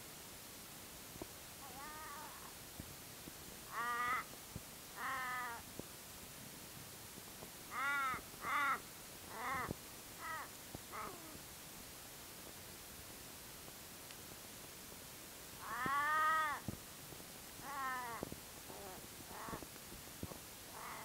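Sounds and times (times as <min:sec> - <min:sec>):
crow cawing: 0:01.6 - 0:02.5, 0:03.7 - 0:04.3, 0:05.0 - 0:05.6, 0:07.7 - 0:11.4, 0:15.6 - 0:16.6, 0:17.6 - 0:19.7, 0:20.7 - 0:21.0.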